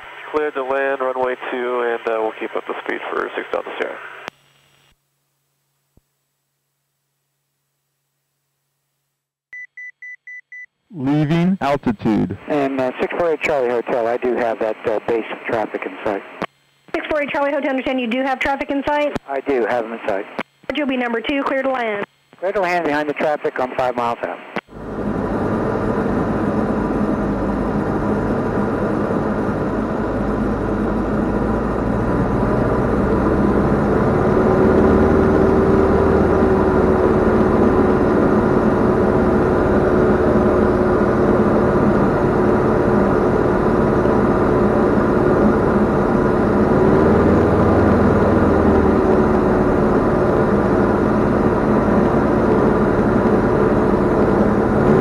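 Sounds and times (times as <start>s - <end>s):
propeller airplane engine droning: 24.7s - 55.0s.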